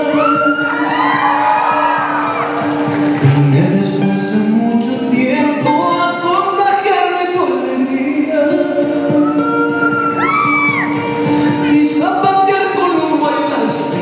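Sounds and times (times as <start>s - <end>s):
man singing: 0.0s - 1.4s, 3.1s - 14.0s.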